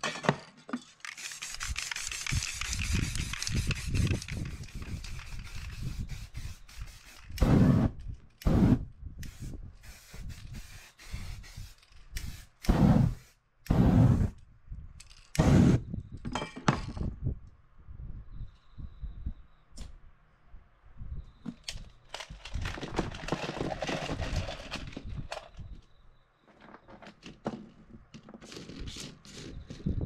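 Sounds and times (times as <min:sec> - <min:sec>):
spray paint can hissing: 0:01.0 - 0:14.4
whooshes of flame: 0:07.4 - 0:08.8, 0:12.7 - 0:14.4.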